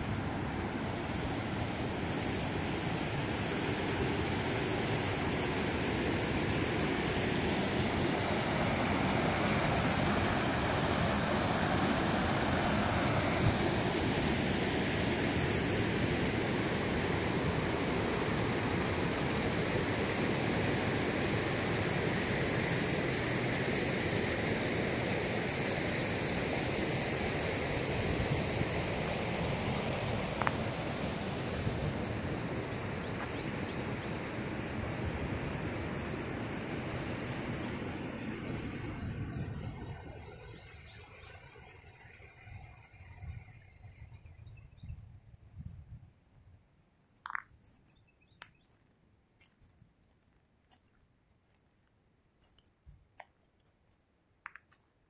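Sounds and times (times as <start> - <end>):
creek water rushing over rocks: 0.0 - 36.3.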